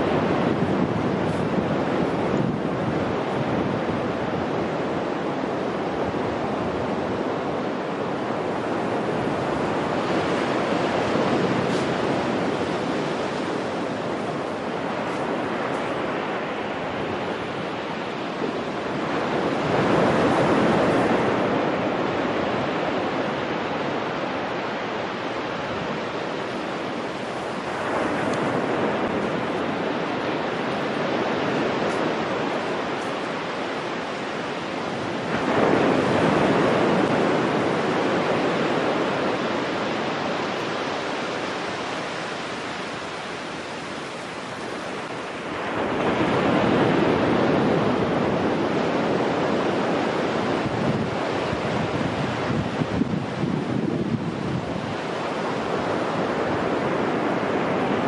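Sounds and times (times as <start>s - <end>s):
waves crashing on beach: 0.0s - 58.0s
hiss of wave wash: 8.3s - 47.6s.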